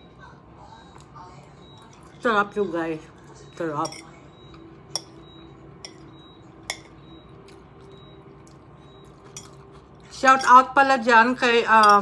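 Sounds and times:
metal fork clinking against bowl: 3.8 - 7.0, 9.2 - 10.8, 11.4 - 12.0.

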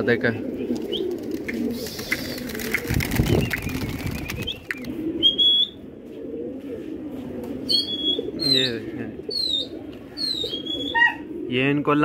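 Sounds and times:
pigeons cooing: 0.0 - 12.0
wings flapping: 0.7 - 5.0.

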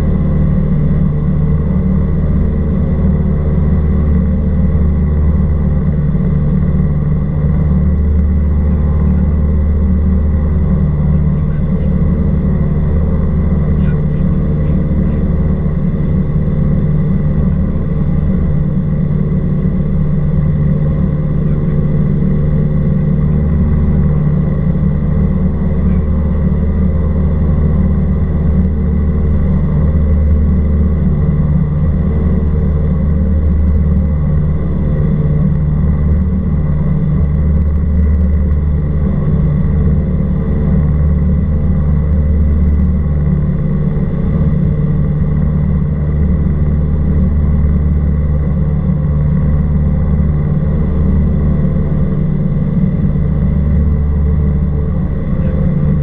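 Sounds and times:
light aircraft engine droning: 0.0 - 56.0.

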